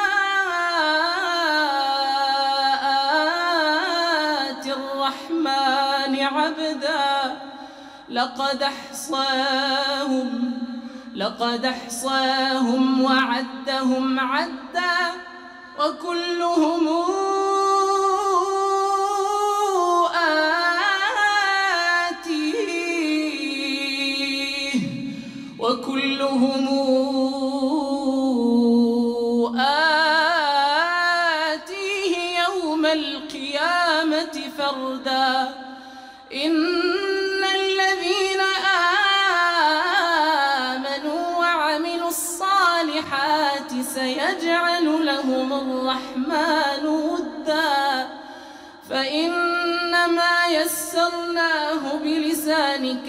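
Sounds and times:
intake of breath: 7.4 - 8.1, 10.7 - 11.2, 25.0 - 25.6, 35.6 - 36.3, 48.2 - 48.8
man chanting a recitation: 15.8 - 35.5, 48.9 - 53.0.

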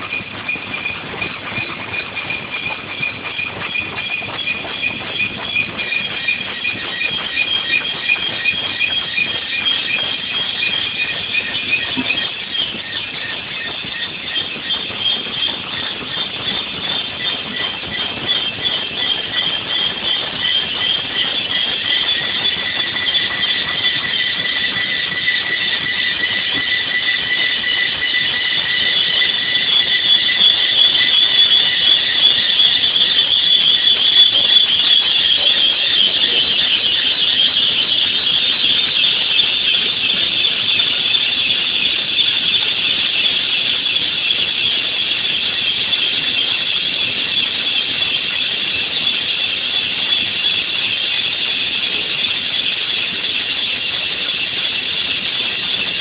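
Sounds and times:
drill bits squealing in metal: 3.3 - 45.4.

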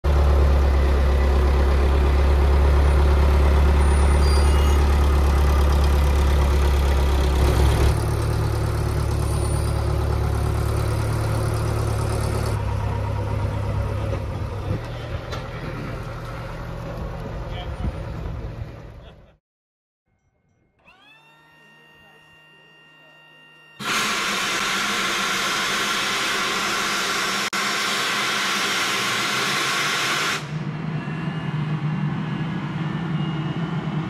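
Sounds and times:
jet engines roaring: 23.8 - 34.0.

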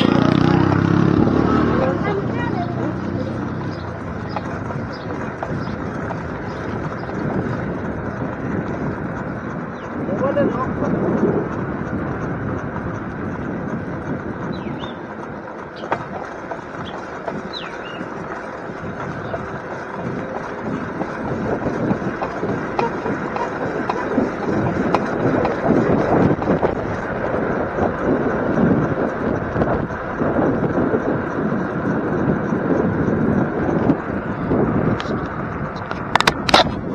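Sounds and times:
bicycle tyres on paved road: 0.0 - 36.9
wind buffeting microphone: 0.0 - 36.9
bird chirps: 14.5 - 15.0, 16.8 - 18.1.

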